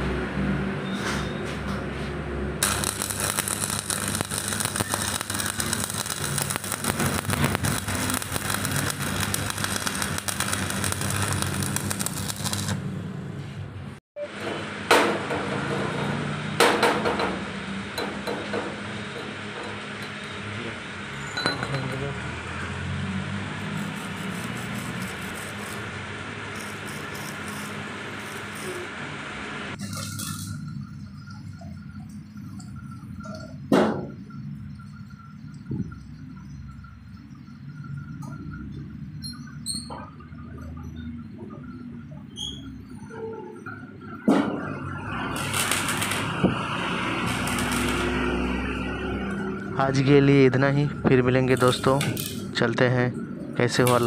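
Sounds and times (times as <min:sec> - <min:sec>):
welding arc crackling: 0:02.6 - 0:13.4, 0:23.3 - 0:33.2, 0:44.8 - 0:50.2, 0:51.4 - 0:52.6, 0:53.7 - 0:54.0
steady low hum: 0:02.6 - 0:14.0.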